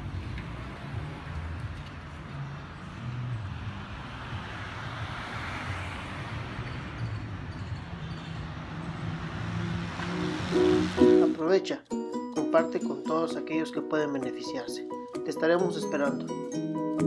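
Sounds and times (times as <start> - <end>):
vehicle passing: 0.0 - 11.5
road traffic hum: 0.0 - 12.1.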